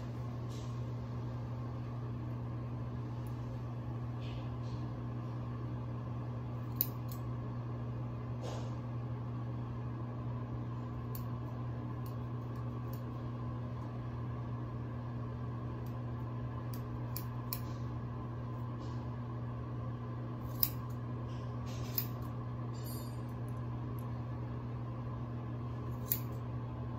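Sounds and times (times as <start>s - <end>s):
low hum: 0.0s - 26.9s
scissors snipping hair: 6.6s - 7.2s, 12.0s - 13.2s, 16.7s - 17.8s, 20.4s - 21.0s, 21.7s - 23.3s, 25.9s - 26.4s.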